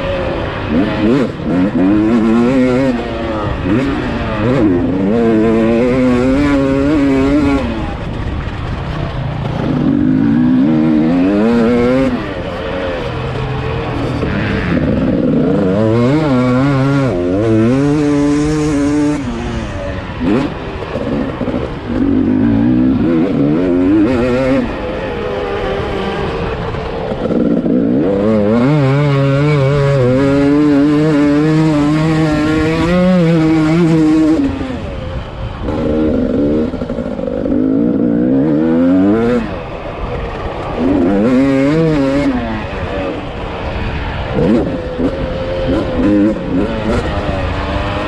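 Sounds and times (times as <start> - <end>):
motocross bike engine revving: 0.0 - 48.0.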